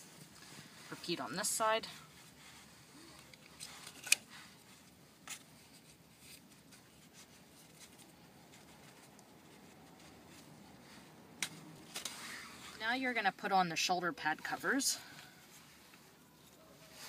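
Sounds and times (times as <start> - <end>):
webbing rustling and sliding: 0.0 - 17.0.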